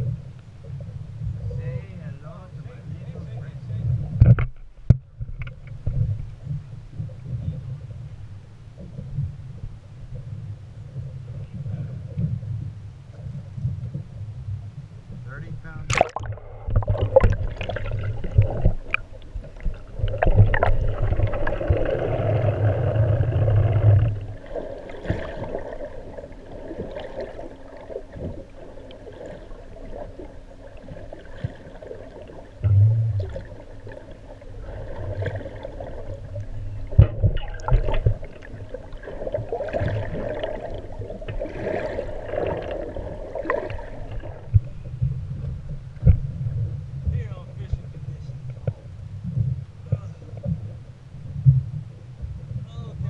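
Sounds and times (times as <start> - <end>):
low underwater rumble: 0.0 - 53.0
gurgling: 15.9 - 25.8, 34.6 - 44.1.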